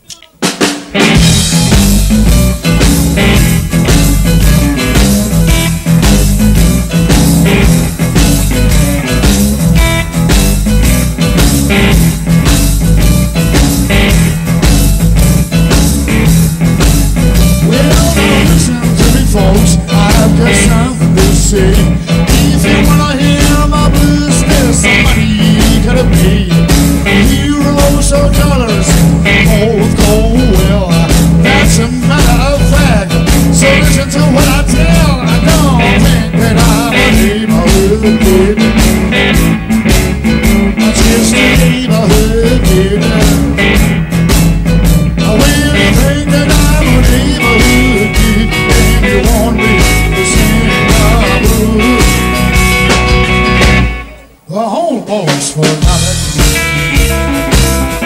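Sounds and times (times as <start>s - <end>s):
man singing: 0.0s - 0.7s, 17.3s - 39.4s, 40.4s - 43.9s, 45.1s - 52.6s, 54.1s - 57.2s
bass: 0.0s - 54.5s, 55.3s - 58.0s
drum kit: 0.0s - 58.0s
electric guitar: 0.0s - 58.0s
keyboards: 0.0s - 58.0s.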